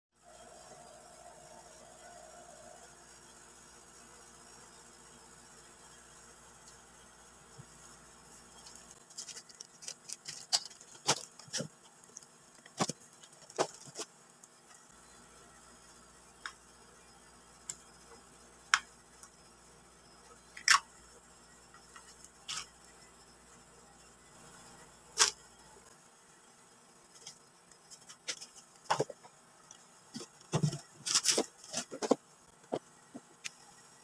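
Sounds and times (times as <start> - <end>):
knocks and rustling: 30.2 - 33.4.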